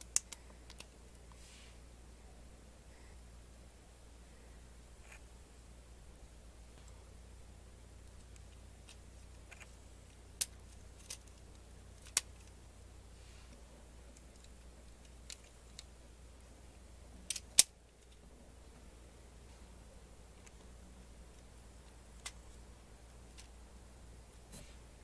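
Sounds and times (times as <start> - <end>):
plastic pieces clicking together: 0.0 - 1.0, 8.2 - 12.6, 14.1 - 15.9, 17.2 - 18.2.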